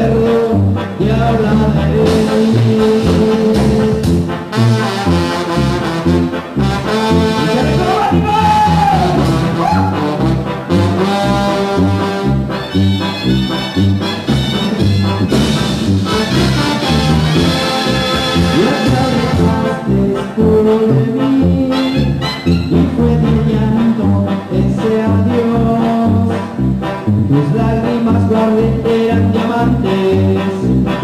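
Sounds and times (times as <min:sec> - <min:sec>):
brass band playing dance music: 0:00.0 - 0:31.0.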